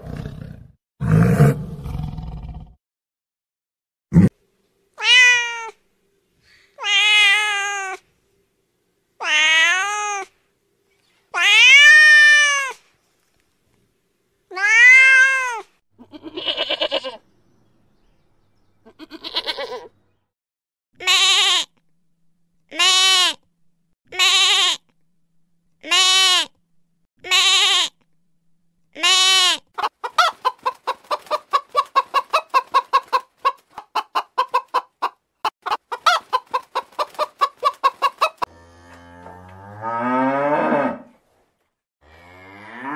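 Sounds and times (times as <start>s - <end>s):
cat meowing: 5.0s - 5.8s, 6.8s - 8.0s, 9.2s - 10.3s, 11.4s - 12.8s, 14.5s - 17.2s.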